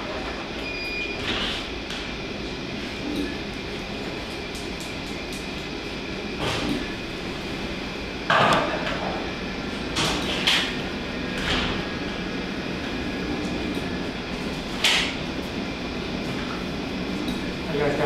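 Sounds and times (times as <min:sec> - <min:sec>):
equipment and ventilation hum: 0:00.0 - 0:18.0.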